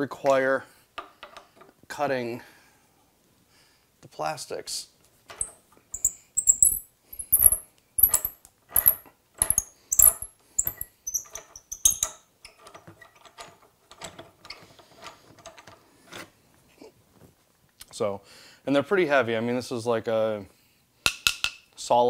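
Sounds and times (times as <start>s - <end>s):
hand ratchet clicking: 6.0s - 12.1s.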